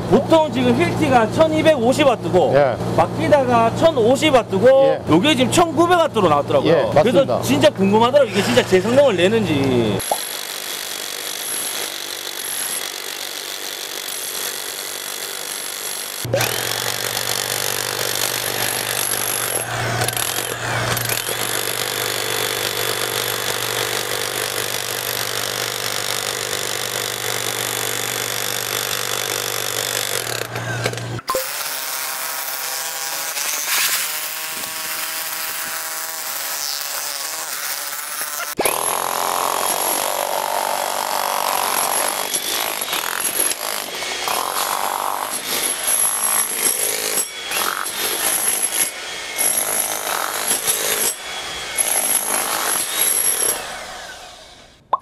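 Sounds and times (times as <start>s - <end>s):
demolition hammers on concrete: 51.8s - 53.6s.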